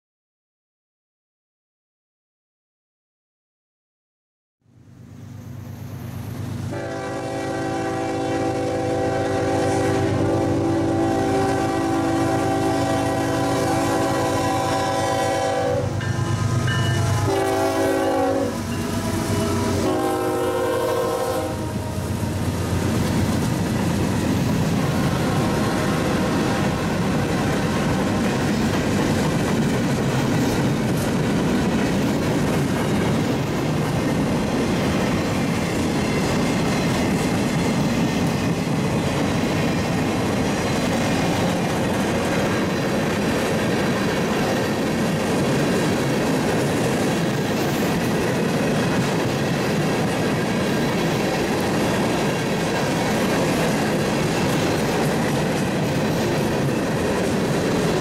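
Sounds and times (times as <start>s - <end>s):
train wheels on rails: 5.2s - 58.0s
train air horn blasts: 6.7s - 22.9s.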